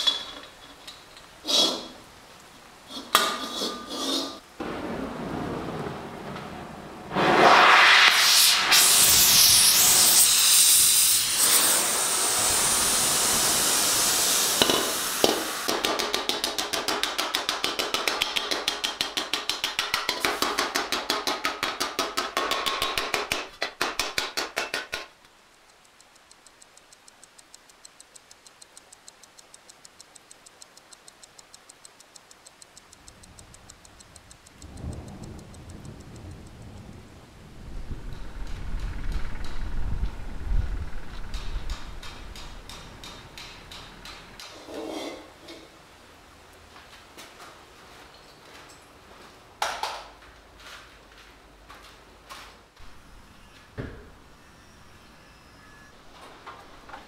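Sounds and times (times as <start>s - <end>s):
loud abrasive hiss: 6.9s - 16.8s
hammer striking metal: 14.6s - 25.1s, 41.3s - 44.4s.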